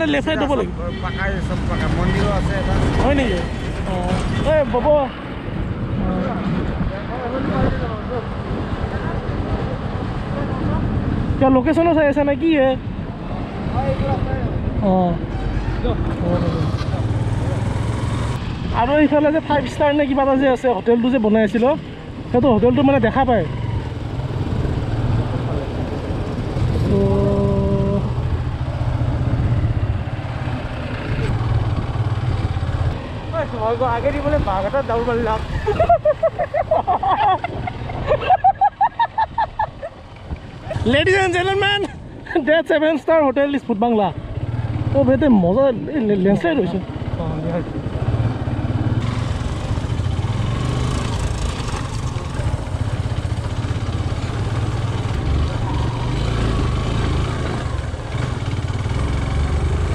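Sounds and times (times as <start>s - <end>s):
motorcycle engine rumbling: 0.0s - 11.3s, 12.8s - 42.3s, 42.9s - 59.9s
motorcycle engine running: 46.7s - 59.9s.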